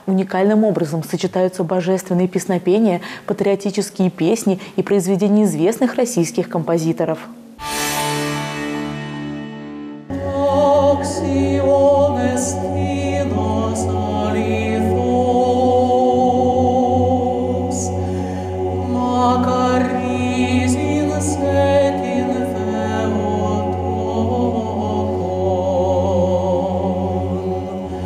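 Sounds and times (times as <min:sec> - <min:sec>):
male choir singing a cappella: 0:10.1 - 0:28.0.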